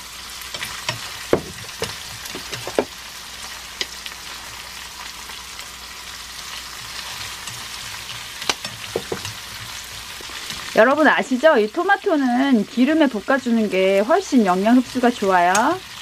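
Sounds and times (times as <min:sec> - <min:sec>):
food sizzling in frying pan: 0:00.0 - 0:16.0
chopsticks knocking on pan: 0:01.3 - 0:02.9, 0:08.4 - 0:09.4.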